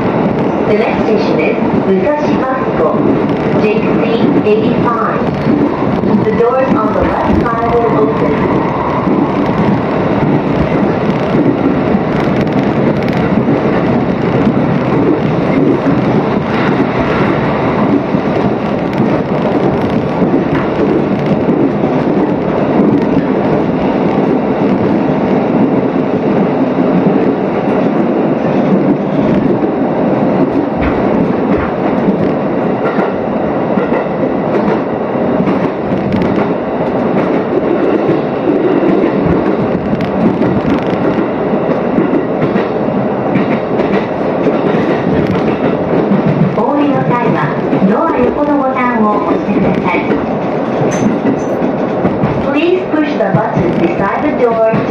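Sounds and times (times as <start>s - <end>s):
train wheels rumbling on rail: 0.0s - 54.9s
clicks of train wheels: 33.8s - 54.9s.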